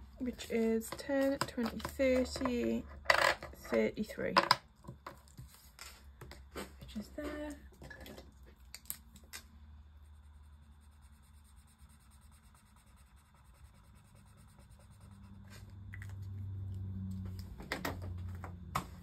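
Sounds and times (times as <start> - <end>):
marker scratching on card: 10.1 - 15.7.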